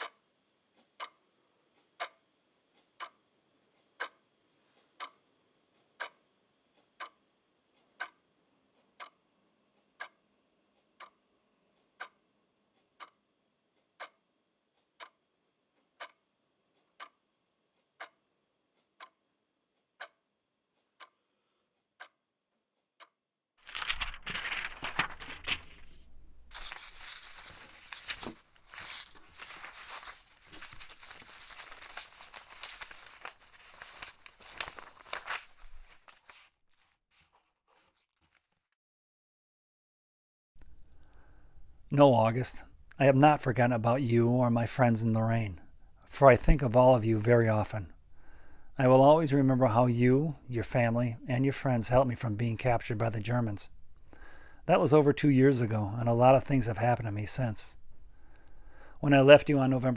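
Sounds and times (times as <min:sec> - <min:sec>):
clock ticking: 0:00.0 - 0:22.2, 0:22.9 - 0:25.6
rustling and crinkling: 0:23.6 - 0:38.8.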